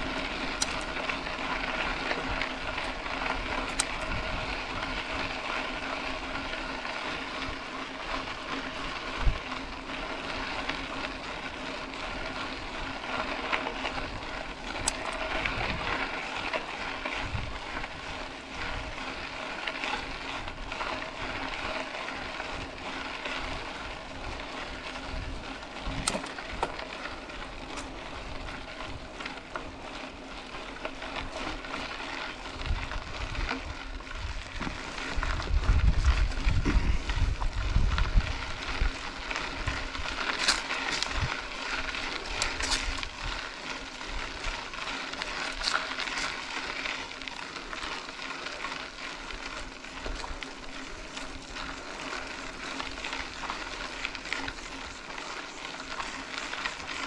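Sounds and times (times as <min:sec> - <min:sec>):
bike tyre and drivetrain noise: 0:00.0 - 0:57.0
sharp clicks and rattles: 0:00.5 - 0:01.2, 0:01.8 - 0:04.4, 0:14.6 - 0:15.8, 0:25.8 - 0:26.8.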